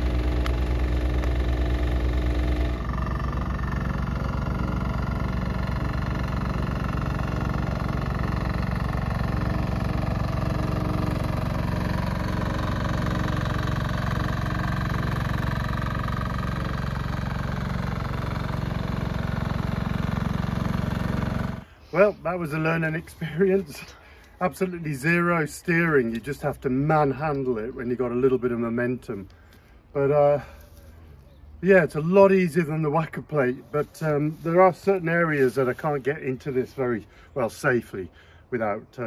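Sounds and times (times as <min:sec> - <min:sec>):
small roller engine running: 0:00.0 - 0:26.2.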